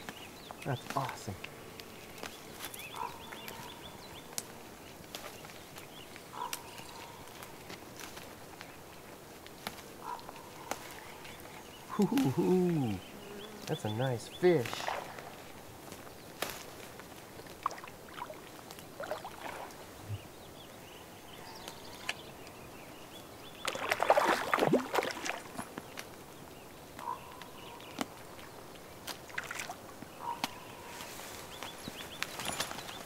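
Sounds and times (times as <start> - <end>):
fish splashing water: 14.7 - 15.4, 17.6 - 19.8, 23.6 - 25.8, 29.3 - 29.8.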